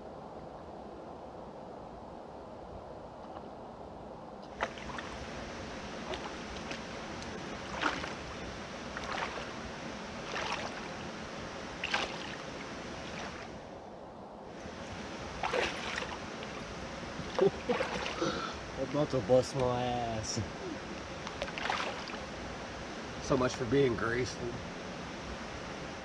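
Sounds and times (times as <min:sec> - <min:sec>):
flowing water: 0:04.3 - 0:26.0
footsteps splashing in creek: 0:04.4 - 0:13.6, 0:14.8 - 0:18.4, 0:21.2 - 0:22.3.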